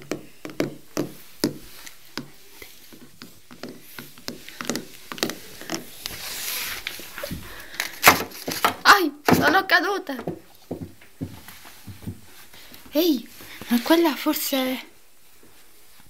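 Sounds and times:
toy tapping on wooden floor: 0:00.0 - 0:01.6
brushing rub of handling: 0:05.0 - 0:07.3.

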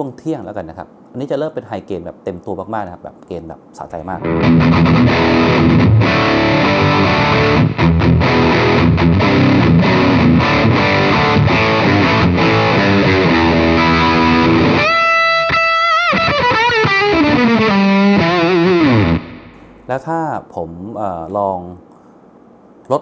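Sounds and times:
distorted electric guitar riff: 0:04.2 - 0:19.9.

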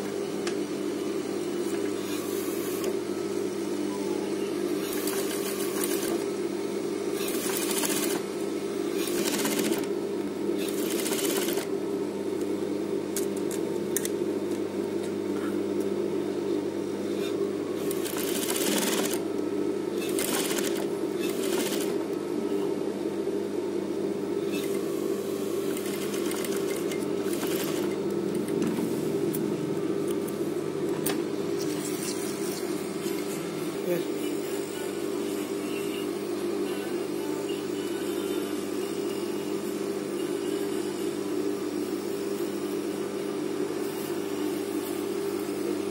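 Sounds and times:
motor hum: 0:00.0 - 0:34.9
sewing machine stitching: 0:07.2 - 0:08.2, 0:09.0 - 0:09.9, 0:10.6 - 0:11.7, 0:17.8 - 0:19.2, 0:20.0 - 0:22.0, 0:25.7 - 0:28.0.

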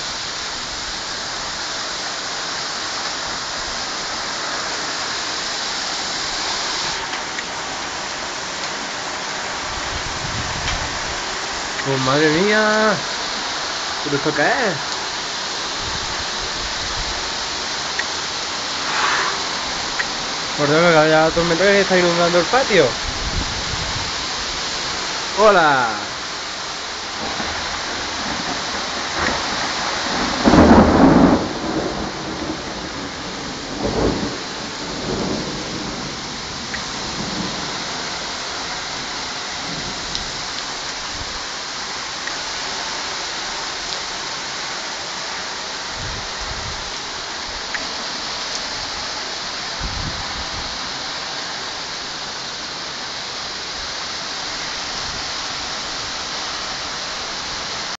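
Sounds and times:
torrential rain pouring: 0:00.0 - 0:58.0
thunder rumbling: 0:18.5 - 0:21.6, 0:27.1 - 0:40.4.

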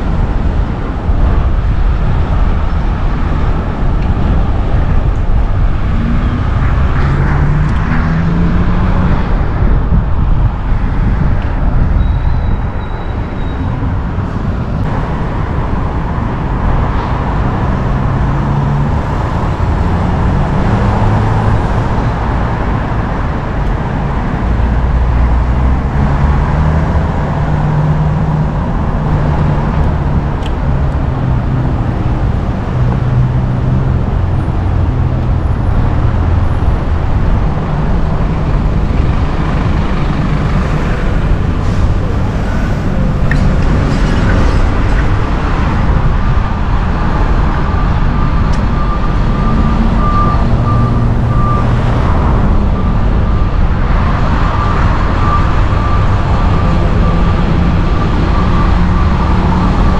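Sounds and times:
road noise rush: 0:00.0 - 0:59.9
vehicle engines running: 0:00.0 - 0:59.9
reversing beeper: 0:11.9 - 0:14.4, 0:47.0 - 0:59.9.

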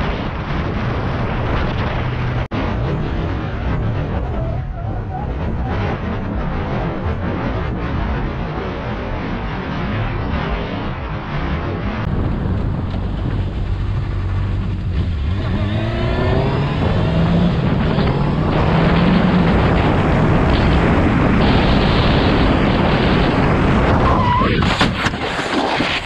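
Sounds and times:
wind rush on microphone: 0:00.0 - 0:26.0
tyre squeal: 0:04.2 - 0:05.8
motorcycle engine revving: 0:09.4 - 0:24.1.

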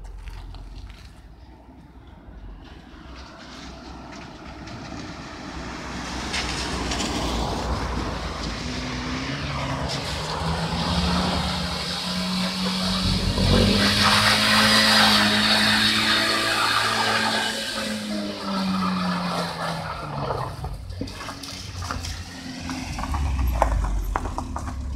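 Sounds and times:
car engine revving: 0:08.4 - 0:24.9.

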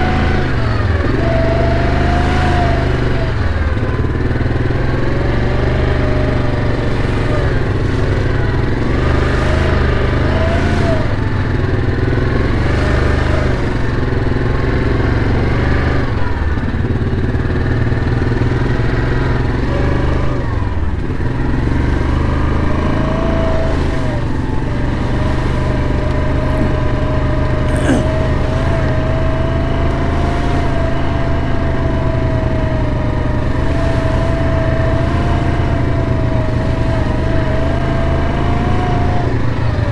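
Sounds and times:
atv engine running: 0:00.0 - 0:39.9.

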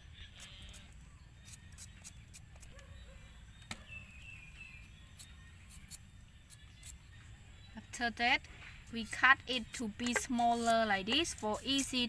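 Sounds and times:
vegetable peeler scraping potato: 0:00.2 - 0:02.8, 0:04.7 - 0:07.1, 0:08.8 - 0:12.0.

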